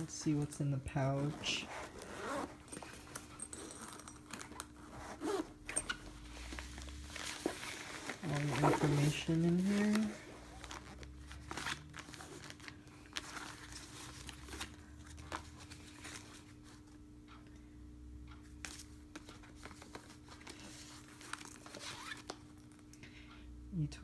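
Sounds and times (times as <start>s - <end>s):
low steady hum: 0.0s - 24.0s
paper rustling: 6.4s - 16.6s, 18.7s - 22.4s.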